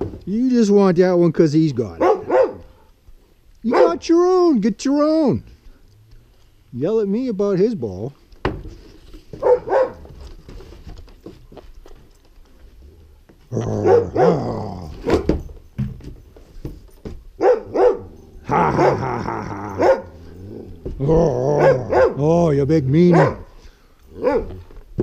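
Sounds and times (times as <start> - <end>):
dog barking and growling: 1.9 - 3.0, 3.6 - 4.4, 9.4 - 10.2, 13.4 - 15.4, 17.4 - 25.0.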